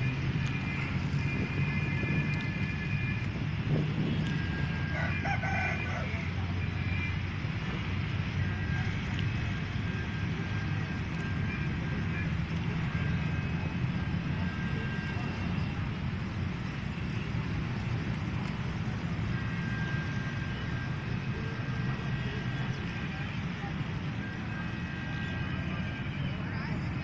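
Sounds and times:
distant vehicle engines rumbling: 0:00.0 - 0:27.0.

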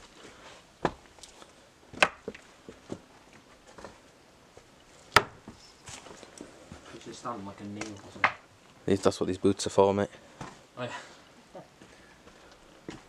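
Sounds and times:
timber knocking and cracking: 0:01.9 - 0:02.4, 0:05.1 - 0:05.6, 0:07.8 - 0:08.4.

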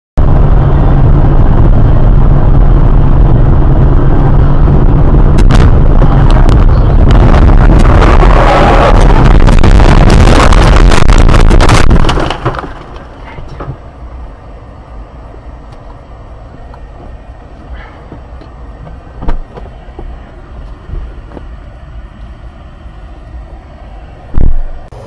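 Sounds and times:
car cabin rumble: 0:00.2 - 0:25.0
loud thump: 0:05.3 - 0:08.2, 0:19.2 - 0:19.8.

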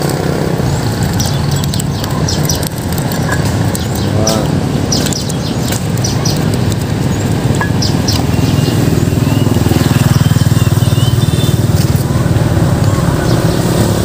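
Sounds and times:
motorbike engine running: 0:00.0 - 0:14.0.

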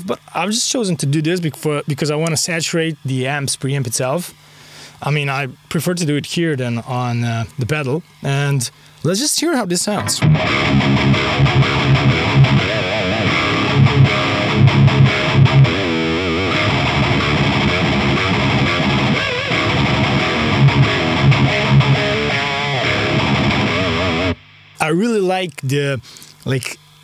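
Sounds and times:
distorted electric guitar riffing: 0:09.9 - 0:24.8.

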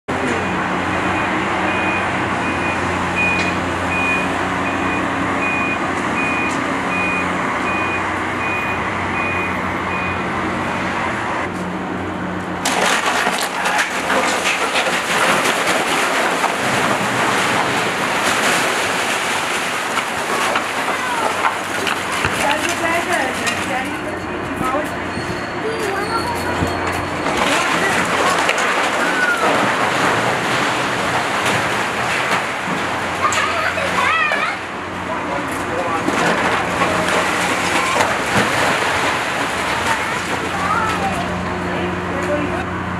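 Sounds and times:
diesel engine running: 0:00.1 - 0:42.9
backup alarm beeping: 0:00.4 - 0:10.3
masonry crashing and collapsing: 0:12.5 - 0:25.7, 0:26.4 - 0:42.6.

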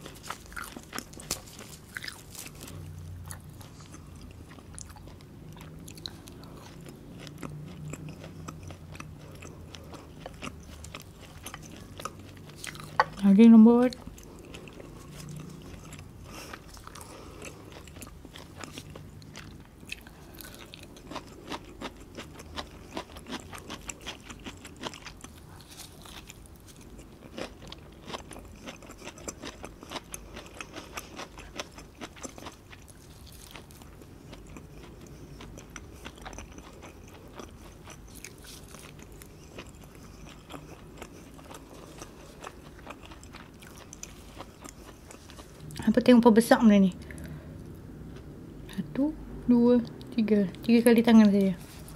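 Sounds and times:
crunchy bites: 0:00.0 - 0:04.1
person chewing: 0:00.0 - 0:46.0, 0:47.0 - 0:48.4, 0:51.4 - 0:51.9.

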